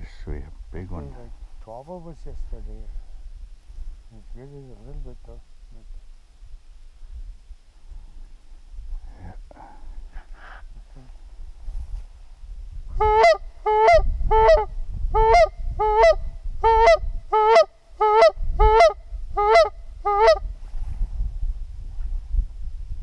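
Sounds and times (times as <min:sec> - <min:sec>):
low wind rumble: 0:00.0 - 0:23.0
goose call two-note honks: 0:13.0 - 0:20.4.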